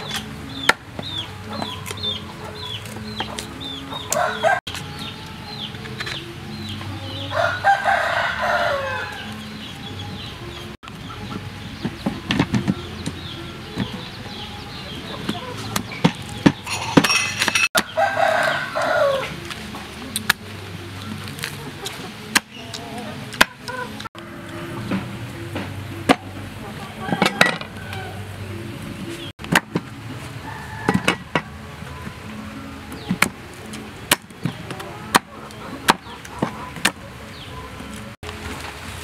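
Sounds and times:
rooster crowing: 4.0s - 4.7s, 7.3s - 9.4s, 17.8s - 19.4s, 26.9s - 28.3s, 30.4s - 31.6s.

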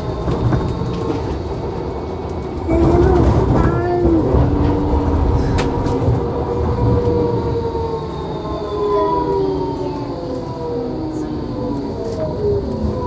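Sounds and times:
tram wheels rumbling on rails: 0.0s - 13.0s
whining tones falling in pitch: 4.1s - 13.0s.

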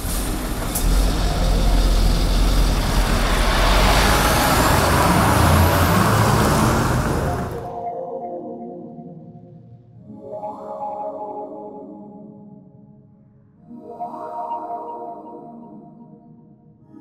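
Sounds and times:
truck engine rumble: 0.0s - 7.7s
road noise: 0.0s - 7.8s.

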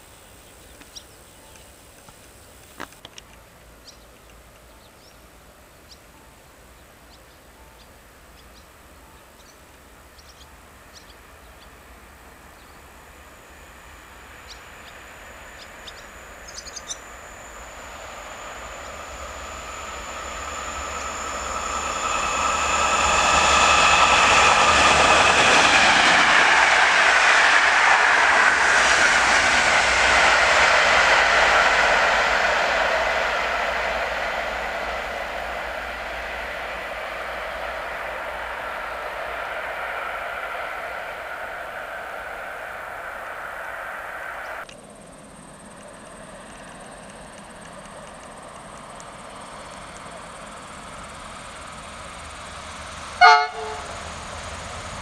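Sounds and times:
train rushing past: 6.4s - 55.0s
high whine dropping in pitch: 11.2s - 44.6s.

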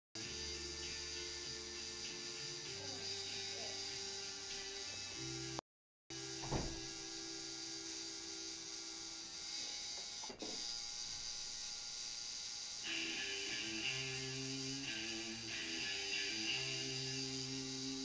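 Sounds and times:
music: 0.2s - 5.6s, 12.8s - 18.0s
tattoo machine buzzing: 0.2s - 18.0s
brief thump: 6.4s - 6.9s.

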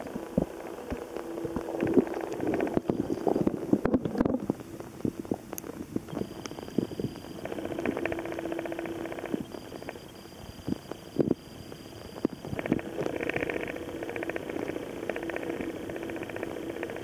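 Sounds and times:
underwater pulsing hum: 0.0s - 17.0s.

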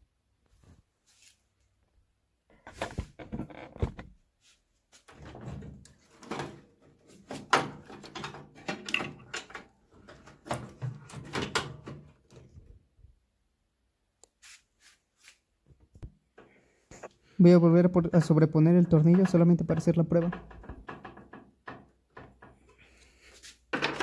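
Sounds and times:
wires and connectors rattling: 2.5s - 4.1s, 5.0s - 12.8s, 17.9s - 24.0s.

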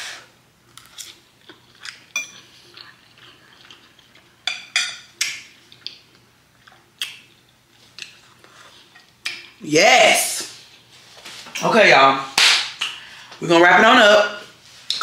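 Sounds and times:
cutlery clinking on a plate: 2.1s - 2.4s, 4.4s - 5.5s.

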